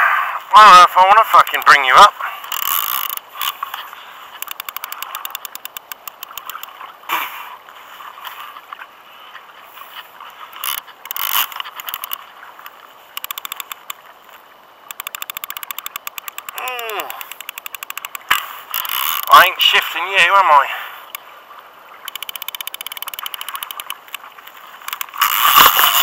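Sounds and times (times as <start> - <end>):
fishing reel clicking fast: 1.3 - 6.8, 10.5 - 12.2, 13.1 - 14.0, 14.8 - 19.5, 22.0 - 26.0.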